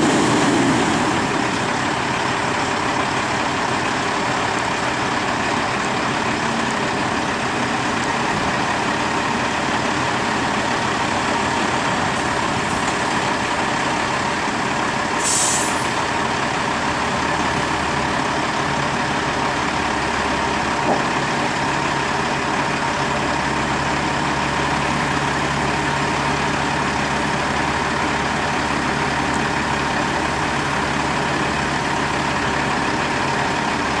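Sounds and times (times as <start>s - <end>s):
diesel truck engine running: 0.0s - 34.0s
air hiss: 15.2s - 16.0s.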